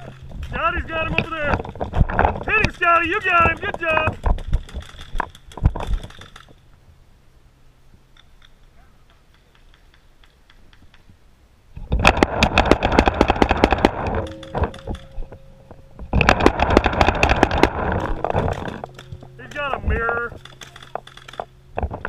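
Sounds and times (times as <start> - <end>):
paintball markers firing: 8.2 - 11.1, 12.0 - 15.0, 16.2 - 21.5.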